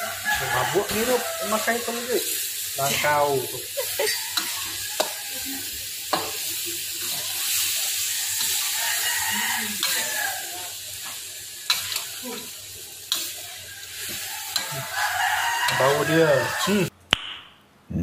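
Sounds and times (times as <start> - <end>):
meat sizzling in a wok: 0.0 - 16.9
metal spatula scraping wok: 0.0 - 16.9.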